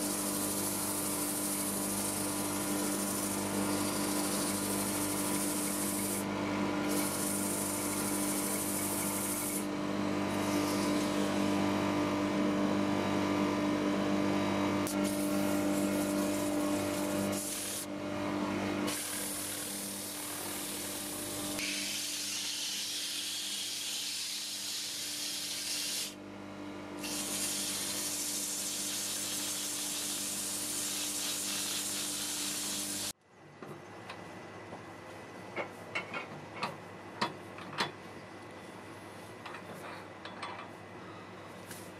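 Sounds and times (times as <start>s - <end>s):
sandpaper hissing on spinning wood: 0.0s - 9.7s, 14.9s - 17.9s, 18.9s - 26.2s, 27.0s - 33.1s
wood lathe motor humming: 0.0s - 11.4s, 14.8s - 17.9s.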